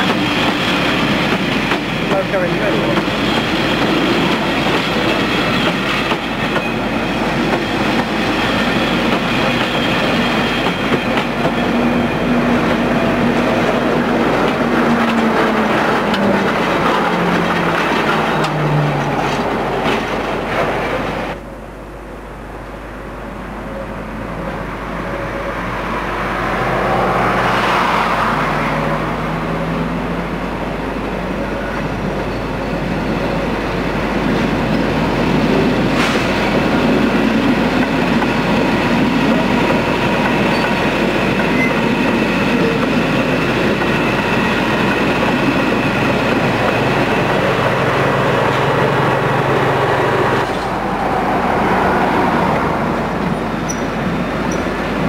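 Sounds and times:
train wheel and rail noise: 0.0 - 55.0
faint wheel squeal: 53.6 - 53.9.

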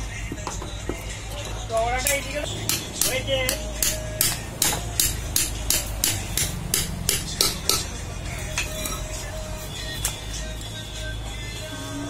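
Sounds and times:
metal-on-metal knocks: 2.6 - 7.9.

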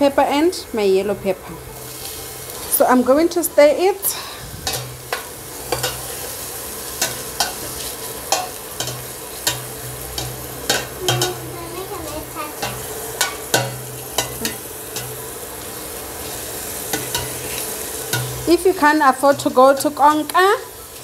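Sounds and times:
vegetables sizzling in oil: 0.0 - 21.0
metal spoon clinking against pot: 4.7 - 6.1, 8.3 - 11.4, 12.6 - 15.2, 16.9 - 17.4, 18.1 - 18.5.

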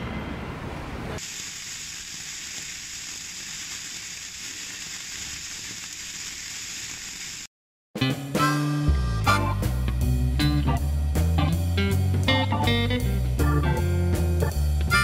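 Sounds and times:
sparklers fizzing: 1.2 - 7.5.

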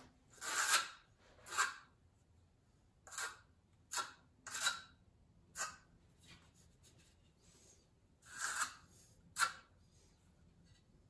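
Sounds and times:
trowel scraping tile mastic: 0.3 - 2.0, 3.0 - 9.7.

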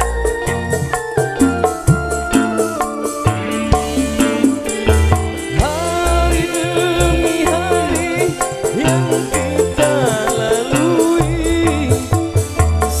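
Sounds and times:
high rattling pulse: 0.0 - 12.3
band playing live: 0.0 - 13.0
drum and bass beat: 0.0 - 13.0
keyboards: 0.0 - 13.0
man singing: 1.8 - 13.0.

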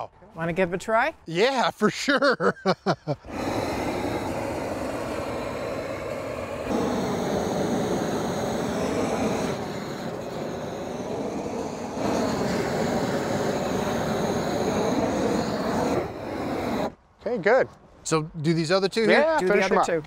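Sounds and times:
propane torch rushing: 3.1 - 17.0.

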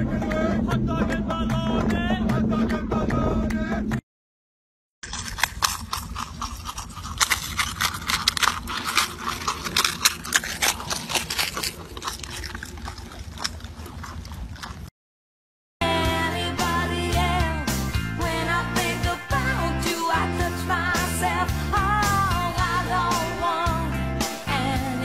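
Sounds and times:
marmots gnawing a carrot: 5.0 - 14.9.

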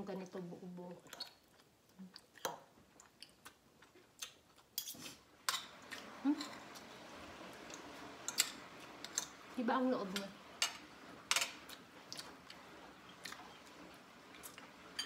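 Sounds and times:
eating sounds: 11.7 - 13.7.

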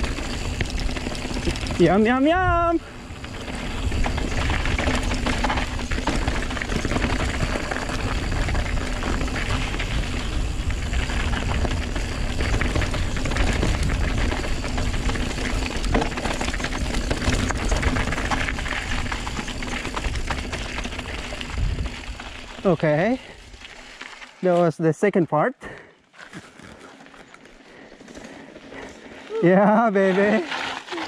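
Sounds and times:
wind rushing over microphone: 0.0 - 22.3
bike tyres rolling on gravel: 0.0 - 31.0.

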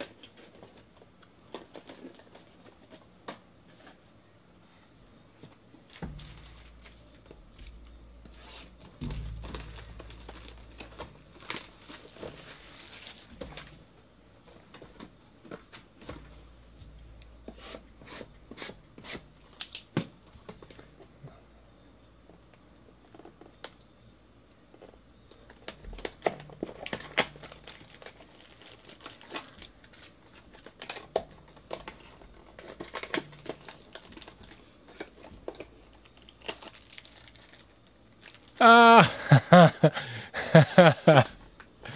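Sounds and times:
plastic wrap and cardboard tearing: 5.9 - 13.8, 25.5 - 38.6.

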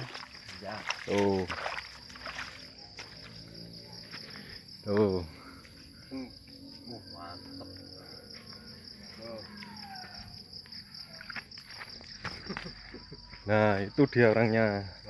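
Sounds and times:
insects trilling: 0.0 - 15.0
faint human calls: 7.9 - 11.2.

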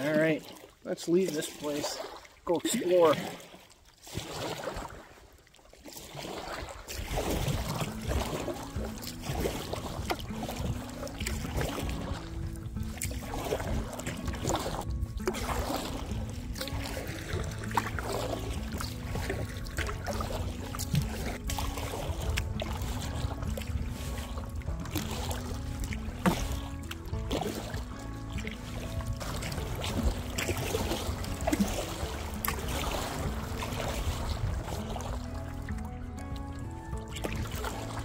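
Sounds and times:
paddle splashing water: 0.0 - 38.0
wind rumble on microphone: 6.9 - 17.7, 32.6 - 35.5
low background music: 7.0 - 38.0
wind on microphone: 32.6 - 35.2.

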